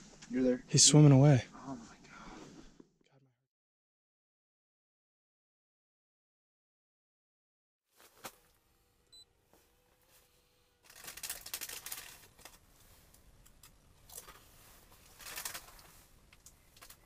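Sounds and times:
crackly rustling handling noise: 0:07.9 - 0:08.7, 0:09.5 - 0:17.0
faint steady hum: 0:08.0 - 0:17.0.

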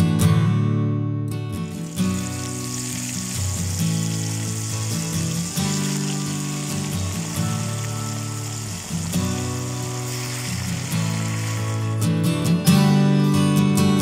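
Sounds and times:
guitar music: 0:00.0 - 0:14.0
food deep-frying in oil: 0:01.6 - 0:12.1.

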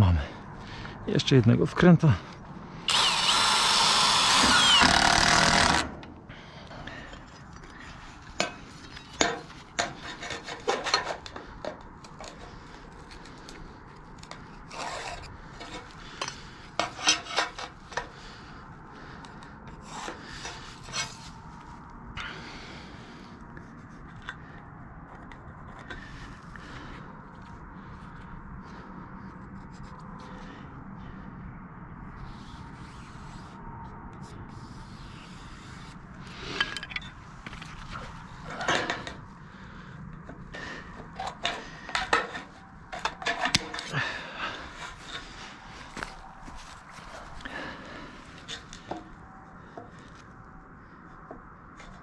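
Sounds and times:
cordless drill running: 0:02.9 - 0:06.0.

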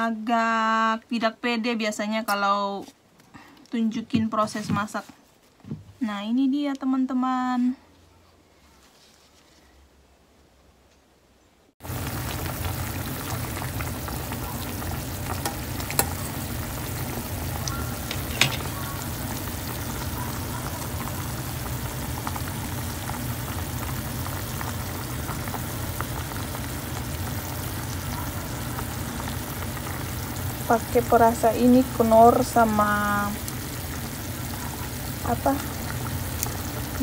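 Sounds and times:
water boiling and bubbling: 0:11.8 - 0:37.0.

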